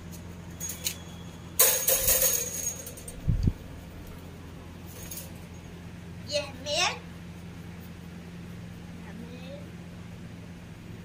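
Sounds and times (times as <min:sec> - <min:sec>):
steady low hum: 0:00.0 - 0:11.0
metallic jangling and clattering: 0:00.5 - 0:03.4, 0:04.9 - 0:05.7.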